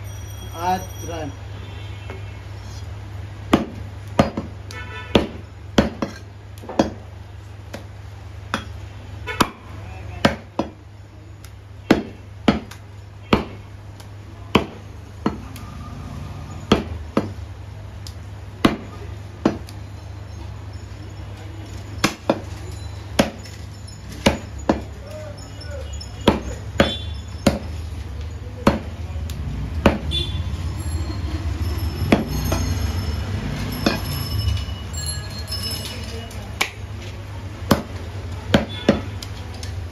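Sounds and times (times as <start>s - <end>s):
cleaver chopping on wooden block: 3.5s - 7.0s, 11.9s - 13.6s, 14.5s - 15.6s, 16.7s - 17.4s, 18.6s - 19.7s, 26.2s - 27.8s, 28.6s - 29.0s, 29.8s - 30.1s, 37.7s - 39.2s.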